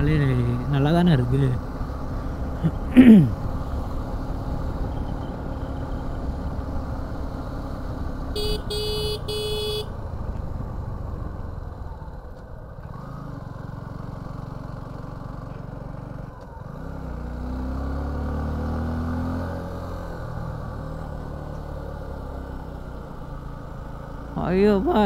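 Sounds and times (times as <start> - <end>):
motorcycle engine running: 0.0 - 17.2
vehicle horn beeps: 8.4 - 10.0.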